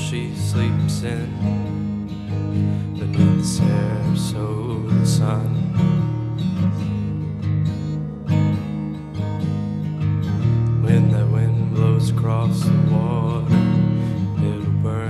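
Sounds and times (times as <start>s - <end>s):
song with strummed acoustic guitar: 0.0s - 15.0s.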